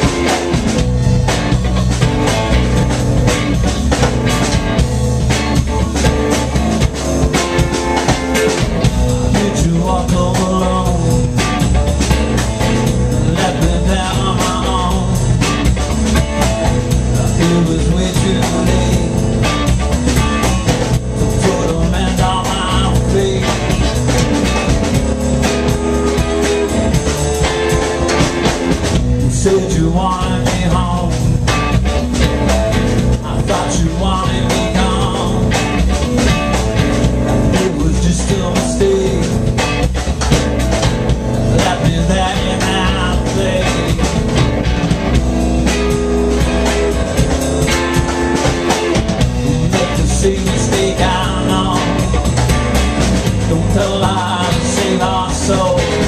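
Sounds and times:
live rock band playing: 0.0s - 56.0s
man singing lead vocal: 9.1s - 11.7s, 13.1s - 15.7s, 17.0s - 19.7s, 21.2s - 24.2s, 29.2s - 31.6s, 33.0s - 35.8s, 37.4s - 39.8s, 41.5s - 44.2s, 49.3s - 52.6s, 53.2s - 56.0s.

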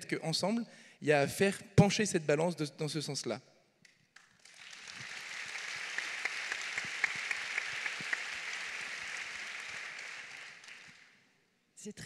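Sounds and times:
crowd applauding: 4.2s - 11.2s.

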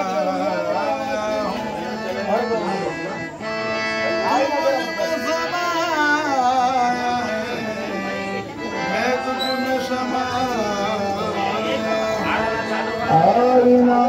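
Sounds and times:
instrumental accompaniment held notes: 0.0s - 14.0s
person singing devotional song: 4.8s - 14.0s.

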